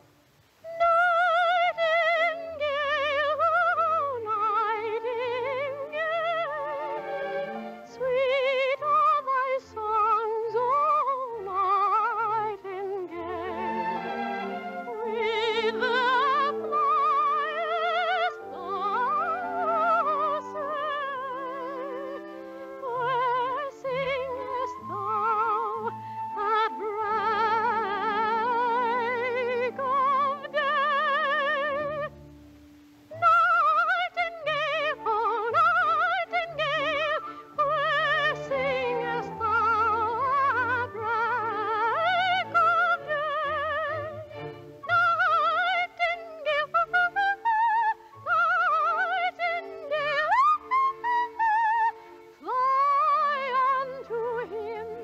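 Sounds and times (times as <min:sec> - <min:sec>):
operatic soprano singing: 0:00.5 - 0:32.3, 0:32.9 - 0:55.0
orchestral accompaniment: 0:02.4 - 0:32.8.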